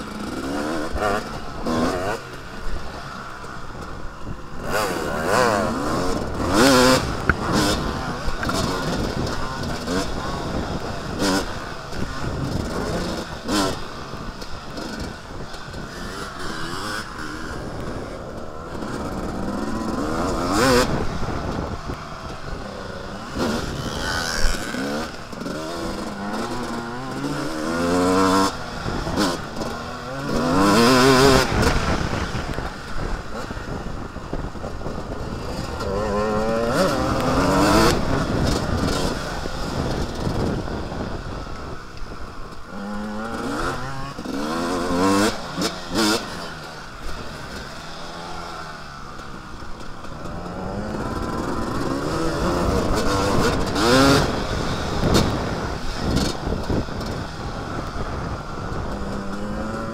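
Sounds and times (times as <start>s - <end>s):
dirt bike engine revving: 0.0s - 59.9s
wind rushing over microphone: 0.0s - 59.9s.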